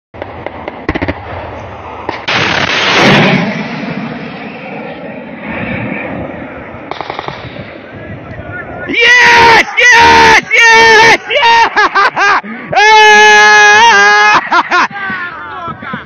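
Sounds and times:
missile launch blast and roar: 0.8s - 8.0s.

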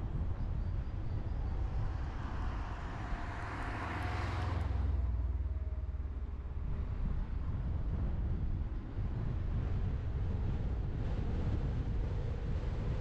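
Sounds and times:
tyre road noise rumble: 0.0s - 13.0s
wind rushing: 0.8s - 5.1s.

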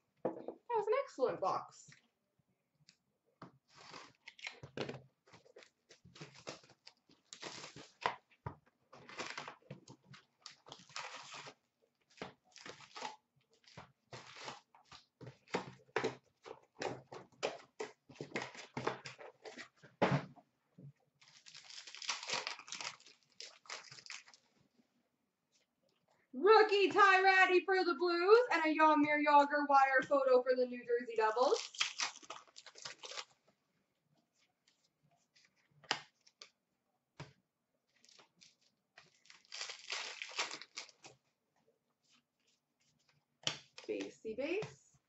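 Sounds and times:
cardboard tearing: 3.7s - 4.6s, 6.1s - 8.1s, 10.5s - 15.0s, 21.2s - 24.4s, 31.5s - 33.4s, 38.0s - 41.2s
wrappers rustling and crinkling: 9.0s - 15.5s, 21.2s - 24.5s, 31.4s - 33.4s, 37.9s - 41.2s.

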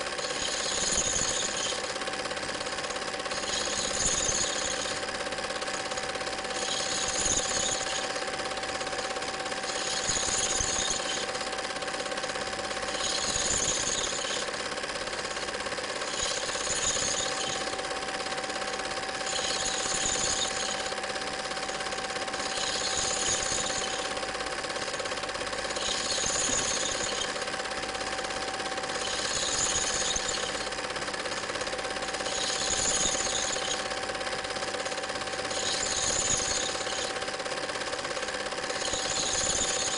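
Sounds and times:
film projector clattering: 0.0s - 39.9s
bright rasp: 25.6s - 27.6s, 28.8s - 31.5s, 35.5s - 37.2s.

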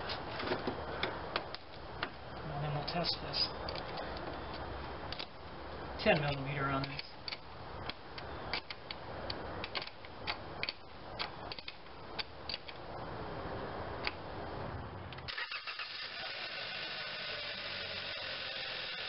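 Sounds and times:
ratchet wrench clicking: 15.3s - 19.0s.

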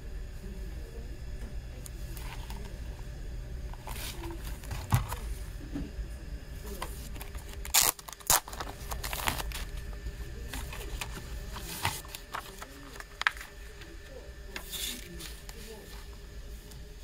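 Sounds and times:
plastic wrapping crinkling: 7.0s - 10.0s.

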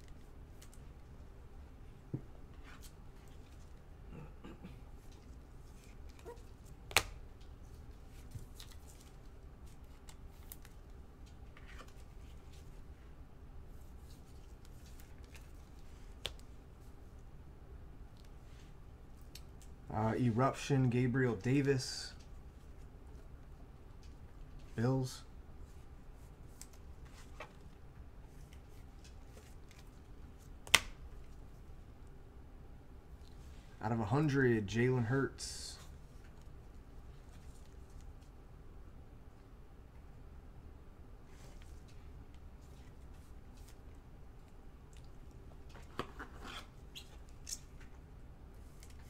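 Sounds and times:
sharp snap: 30.7s - 31.0s.

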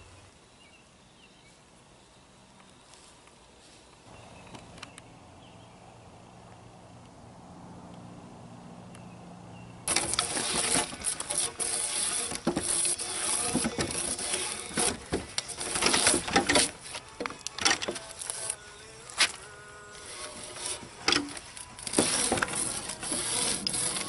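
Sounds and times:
drawknife scraping bark off log: 9.9s - 24.0s.

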